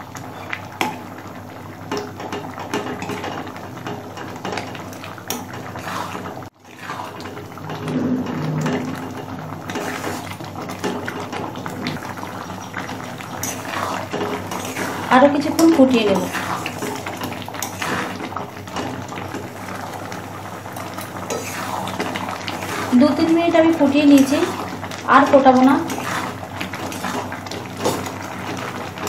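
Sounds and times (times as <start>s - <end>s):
chutney bubbling in pan: 0.0s - 29.0s
metal spatula scraping pan: 5.8s - 12.0s, 13.3s - 18.3s, 25.4s - 28.2s.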